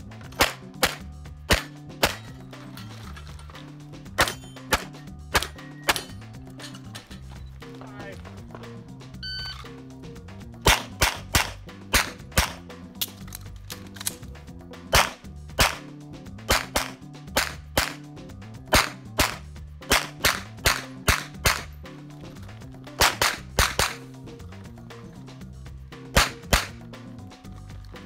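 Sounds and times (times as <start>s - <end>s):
pistol shots: 0.3s - 2.3s, 10.6s - 13.2s, 14.9s - 15.9s, 16.5s - 18.1s, 18.7s - 21.7s, 23.0s - 24.0s, 26.1s - 26.8s.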